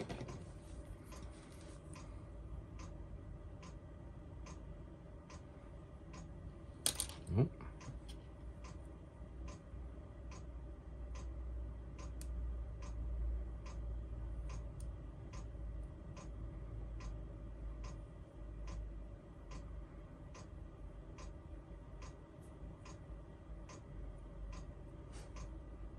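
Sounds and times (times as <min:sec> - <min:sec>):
steady ticking: 0:02.7 - 0:06.4, 0:07.8 - 0:25.9.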